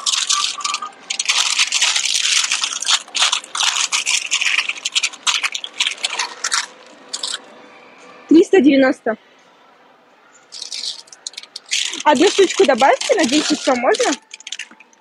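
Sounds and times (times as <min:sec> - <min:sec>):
plastic packaging crinkling: 0:00.0 - 0:07.4, 0:10.5 - 0:15.0.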